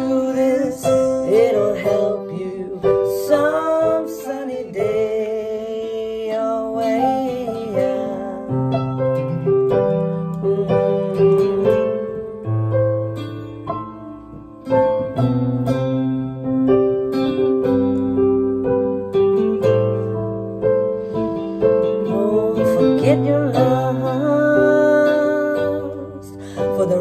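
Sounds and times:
guitar: 0.0 - 27.0
keyboard chords: 0.0 - 27.0.

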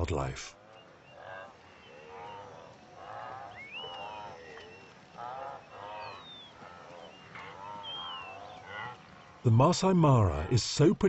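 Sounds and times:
wildebeest grunting calls: 0.6 - 9.6
whistled bird notes: 0.7 - 8.7.

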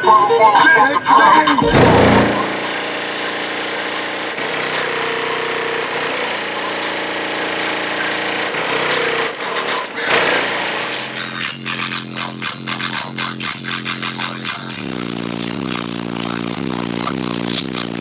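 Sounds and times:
loud subwoofer bass: 1.7 - 2.7.

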